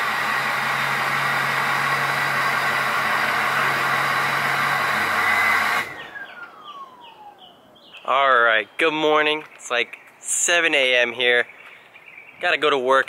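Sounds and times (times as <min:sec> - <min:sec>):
whine falling in pitch: 0:05.9 - 0:08.2.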